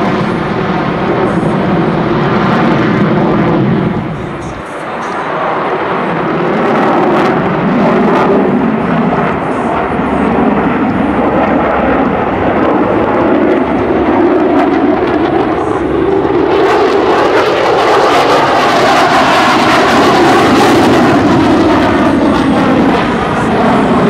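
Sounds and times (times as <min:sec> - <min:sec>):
jet aircraft roaring overhead: 0:00.0 - 0:24.0.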